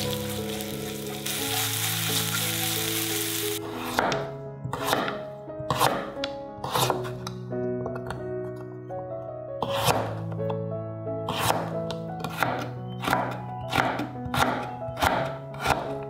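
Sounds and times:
onion sizzling in hot oil: 0:00.0 - 0:03.6
knife chopping on cutting board: 0:03.8 - 0:07.2, 0:09.6 - 0:10.2, 0:11.3 - 0:16.0.

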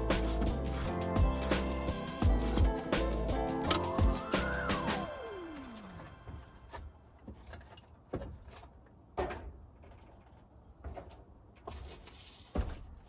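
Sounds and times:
footsteps on roof tiles: 0:05.7 - 0:13.0.

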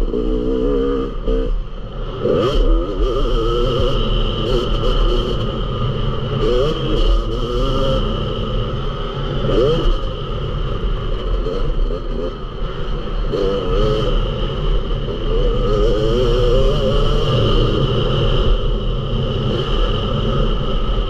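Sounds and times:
motocross bike engine revving: 0:00.0 - 0:21.0.

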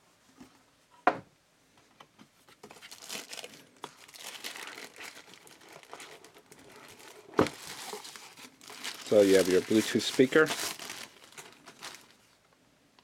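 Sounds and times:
plastic wrapping crinkling: 0:02.5 - 0:12.5.

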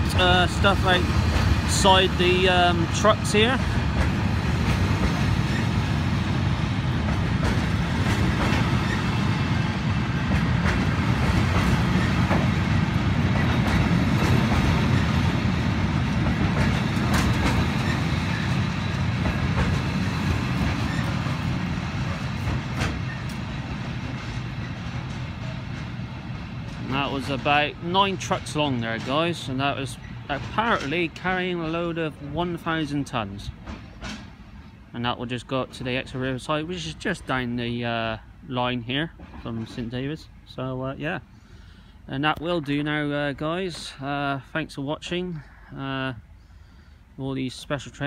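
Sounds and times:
wheels clicking over rail joints: 0:00.0 - 0:34.4, 0:43.3 - 0:44.0
train wheels rumbling on rail: 0:00.0 - 0:48.0.

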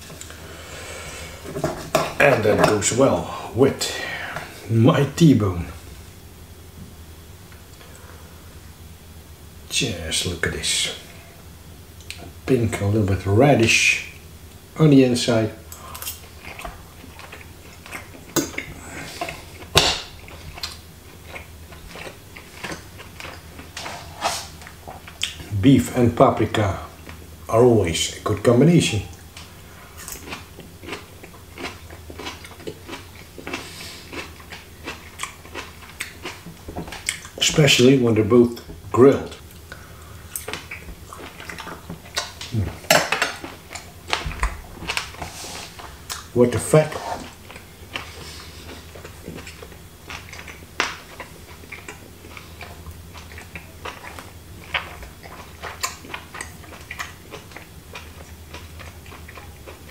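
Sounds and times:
person chewing: 0:15.7 - 0:25.5, 0:29.0 - 0:37.6, 0:38.5 - 0:59.9.

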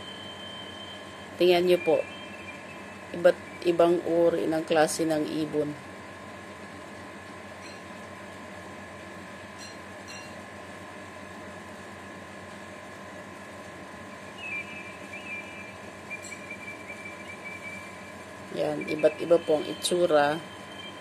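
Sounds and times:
thin high whistling tone: 0:00.0 - 0:04.2, 0:14.3 - 0:21.0
faint constant tones: 0:00.0 - 0:21.0
steady hum: 0:00.0 - 0:21.0.

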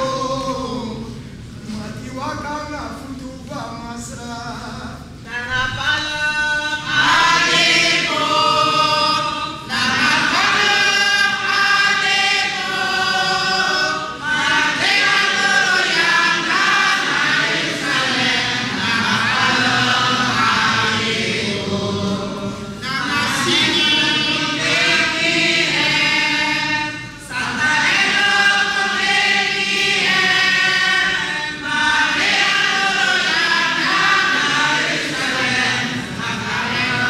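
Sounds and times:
group of people singing: 0:00.0 - 0:01.4, 0:05.3 - 0:37.0.

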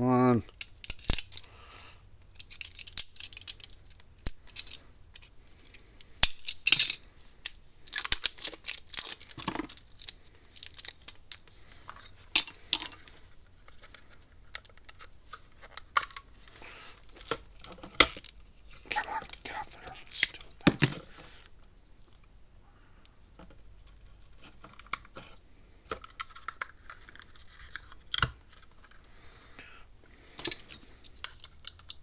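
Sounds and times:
plastic clicks and rattles: 0:00.5 - 0:01.5, 0:02.3 - 0:05.3, 0:06.0 - 0:13.0, 0:30.4 - 0:32.0.

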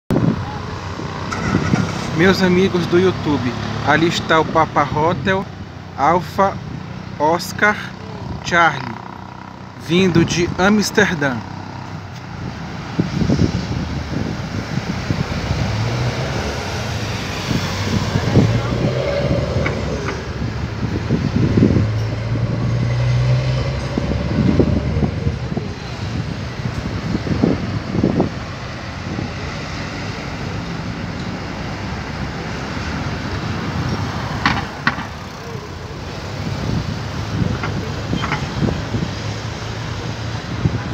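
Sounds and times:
wind on microphone: 0:00.1 - 0:02.2, 0:11.5 - 0:40.9
distant jet airliner rumble: 0:11.4 - 0:39.2.

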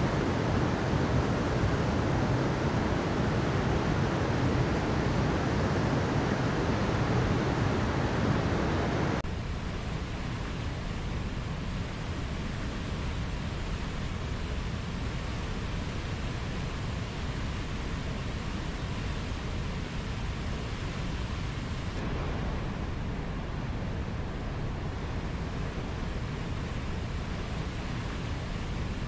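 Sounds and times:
river rapids rushing: 0:00.0 - 0:09.2
stream cascade rushing: 0:00.0 - 0:09.2, 0:10.0 - 0:29.0.

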